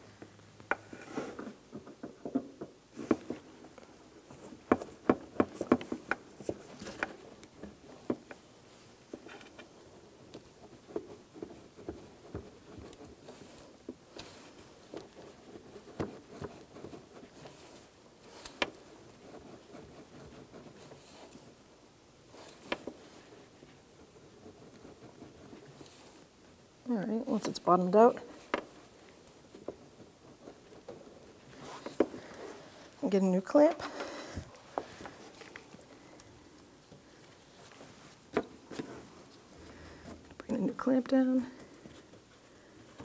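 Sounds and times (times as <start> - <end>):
rubber hose clicking and rubbing: 0.6 - 21.6, 33.7 - 40.6.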